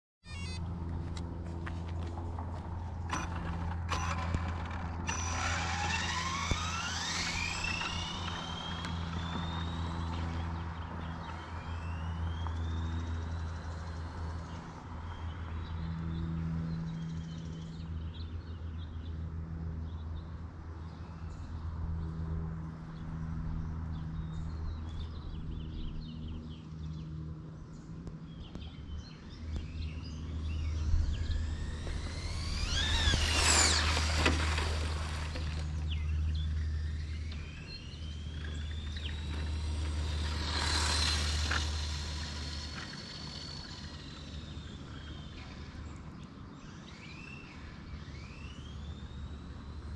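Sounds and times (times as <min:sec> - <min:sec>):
birds chirping: 0:00.2 - 0:16.1, 0:27.7 - 0:49.4
low engine drone: 0:00.2 - 0:49.9
car accelerating with high whine: 0:00.3 - 0:19.2, 0:19.9 - 0:49.9.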